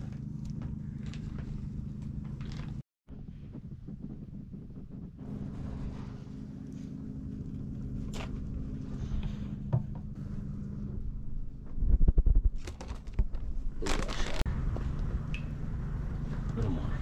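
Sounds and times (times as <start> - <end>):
steady low hum: 0.0 - 17.0
plastic bag crinkling: 12.6 - 14.4.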